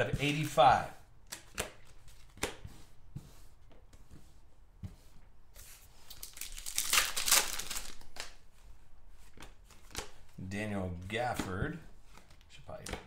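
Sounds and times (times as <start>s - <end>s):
cards clicking: 1.3s - 2.6s
foil wrapper tearing and crinkling: 6.1s - 8.4s.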